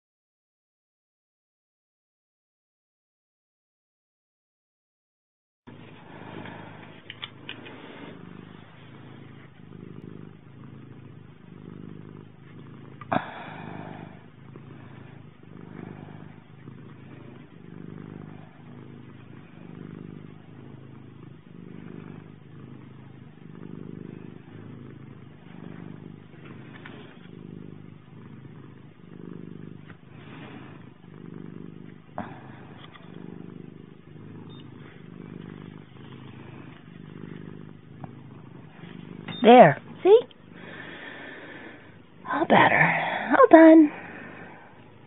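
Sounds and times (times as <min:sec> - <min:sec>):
cat purring: 0:05.7 - 0:45.0
small clicks: 0:07.0 - 0:07.7.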